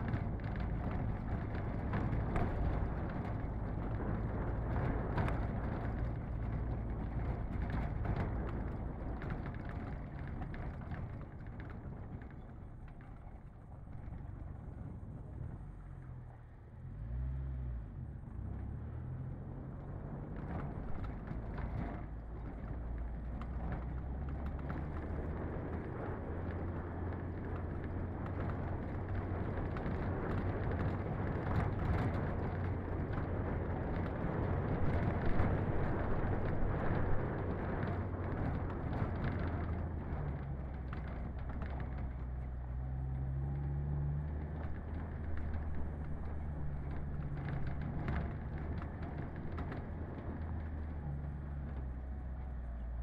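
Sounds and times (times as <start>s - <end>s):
tyres rumbling on dirt track: 0.0s - 53.0s
knocks and rattles: 44.2s - 52.0s.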